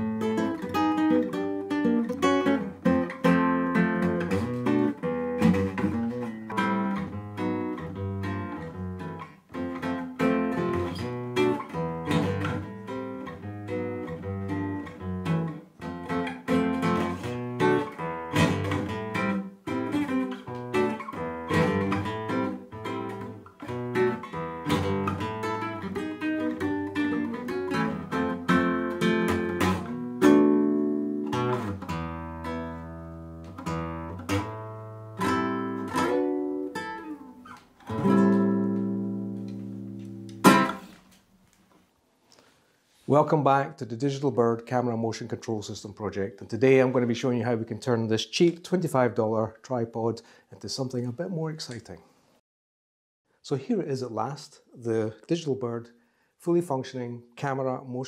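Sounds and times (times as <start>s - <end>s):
classical guitar fingerstyle: 0.0s - 41.2s.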